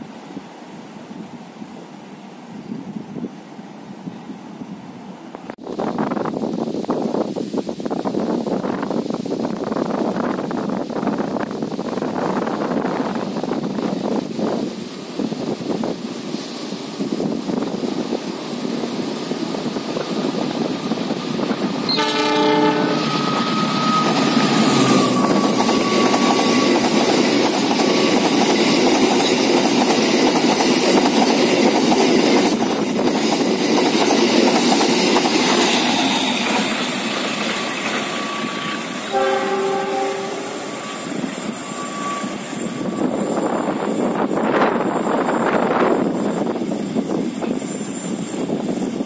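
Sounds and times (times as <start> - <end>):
train wagons rumbling on rails: 5.4 - 49.0
train horn: 21.9 - 26.9, 37.6 - 43.4.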